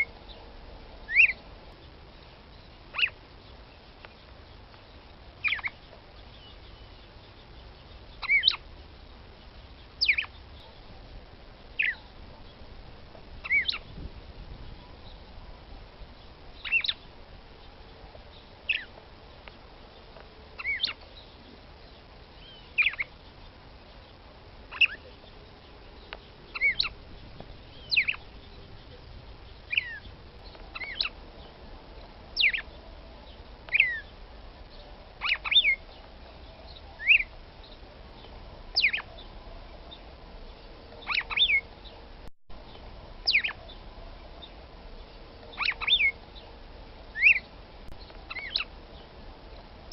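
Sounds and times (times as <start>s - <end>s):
bird calling sharp notes: 1.1s - 1.4s, 5.4s - 8.7s, 13.4s - 13.9s, 26.5s - 27.0s, 29.6s - 31.2s, 41.0s - 41.7s, 43.2s - 43.7s, 45.5s - 46.2s, 47.1s - 47.5s, 48.2s - 48.8s.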